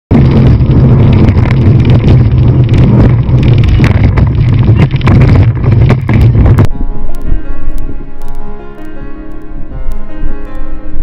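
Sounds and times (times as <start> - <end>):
speedboat engine running: 0.1 - 6.7
wind buffeting microphone: 0.1 - 8.4.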